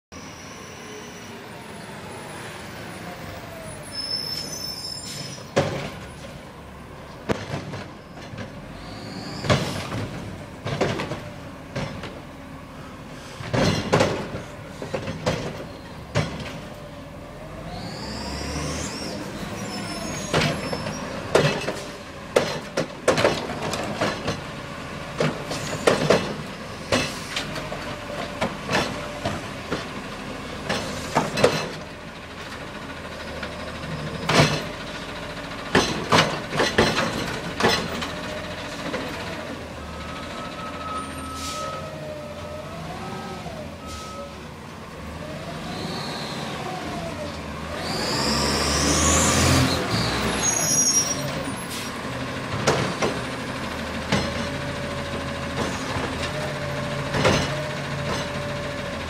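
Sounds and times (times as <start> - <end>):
brakes squealing: 0.1 - 11.3, 12.7 - 22.7, 25.1 - 29.9, 32.7 - 59.0
metal clanks and bangs: 13.5 - 16.7, 35.7 - 38.2
garbage truck engine running: 46.6 - 59.0.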